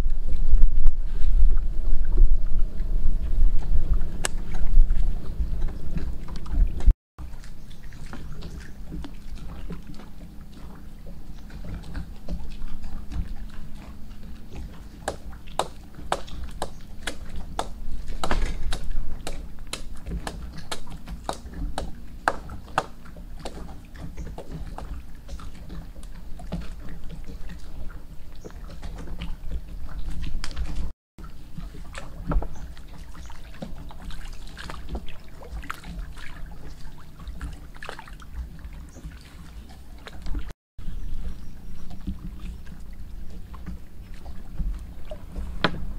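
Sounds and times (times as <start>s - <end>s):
wind and water rumble: 0.0s - 45.9s
blade cutting tree bark: 15.0s - 23.6s.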